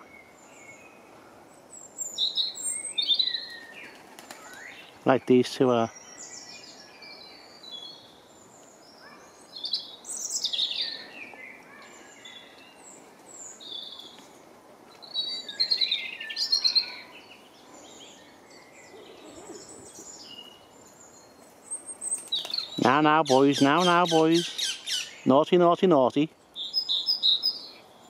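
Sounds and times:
parakeets screeching: 0:22.8 - 0:25.2.

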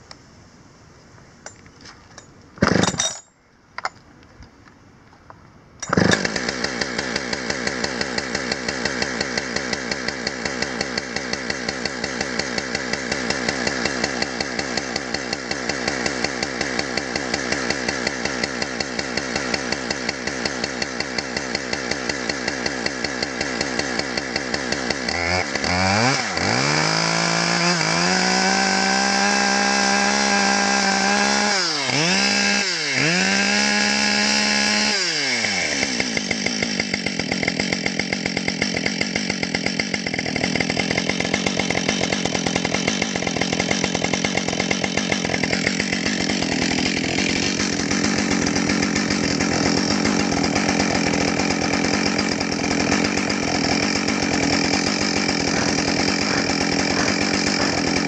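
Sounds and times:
starter cord pull: 0:05.8 - 0:06.5
chainsaw engine running: 0:05.8 - 0:58.0.

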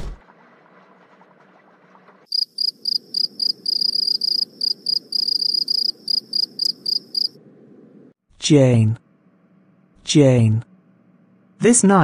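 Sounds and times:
crickets chirping: 0:02.3 - 0:07.4.

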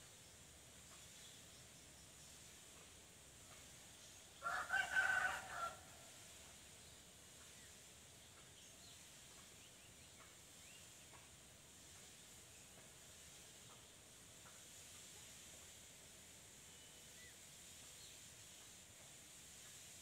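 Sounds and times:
rooster crowing: 0:04.4 - 0:06.1.

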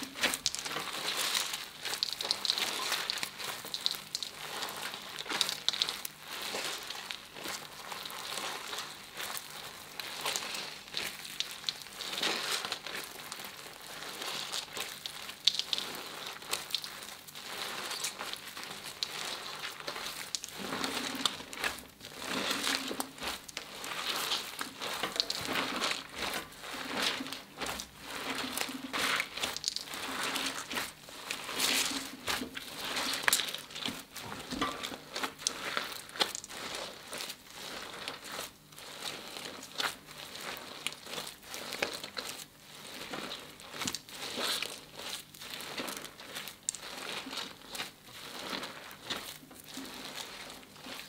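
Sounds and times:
slime squeezing and crackling: 0:00.0 - 0:51.0.

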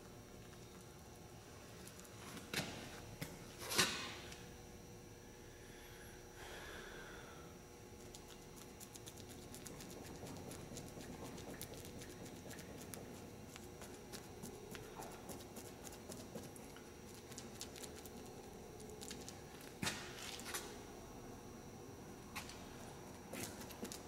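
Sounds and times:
steady background hum: 0:00.0 - 0:24.0
brush dabbing wet resin: 0:08.0 - 0:19.8.

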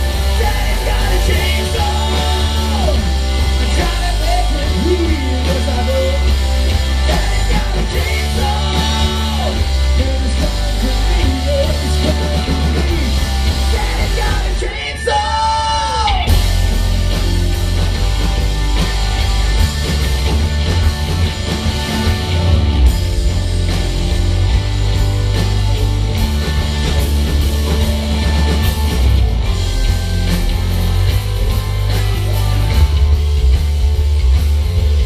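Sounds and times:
man singing: 0:00.0 - 0:16.5
rock band playing live: 0:00.0 - 0:35.0.

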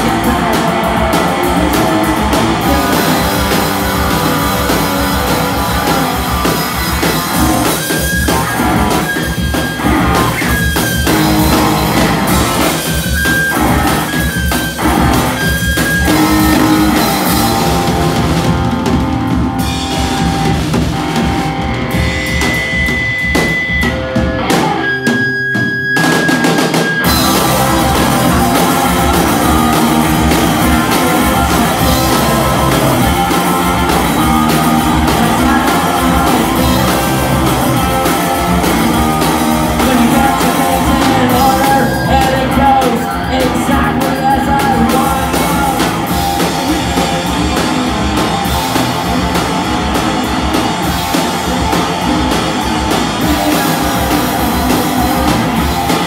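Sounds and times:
person singing lead vocal: 0:00.0 - 0:09.2, 0:27.1 - 0:47.0, 0:53.2 - 0:56.0
bass guitar: 0:00.0 - 0:56.0
drum kit: 0:00.0 - 0:56.0
electric guitar: 0:00.0 - 0:56.0.

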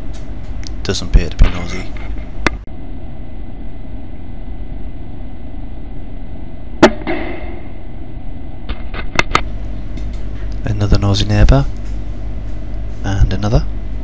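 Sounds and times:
low background rumble: 0:00.0 - 0:14.0
air rifle shot crack: 0:06.8 - 0:07.8.

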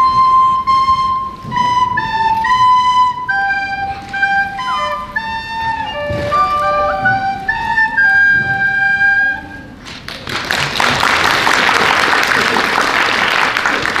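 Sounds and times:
recorders playing: 0:00.0 - 0:09.8
audience applause: 0:09.9 - 0:14.0.

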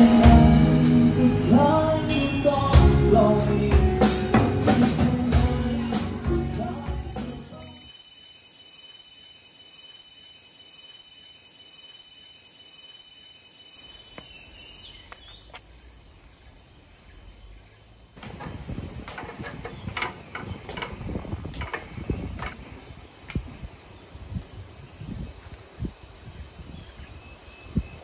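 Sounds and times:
high insect trill: 0:06.1 - 0:28.0
footsteps on metal staircase: 0:18.2 - 0:23.4.

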